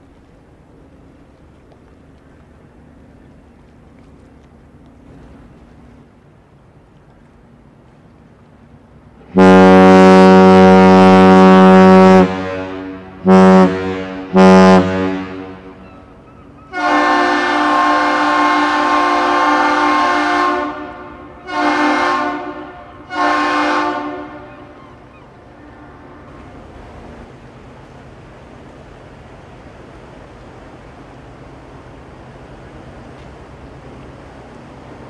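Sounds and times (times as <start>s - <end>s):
deep ship's horn blasts: 9.2s - 27.4s
higher-pitched horn blasts: 9.3s - 15.8s, 16.7s - 24.8s.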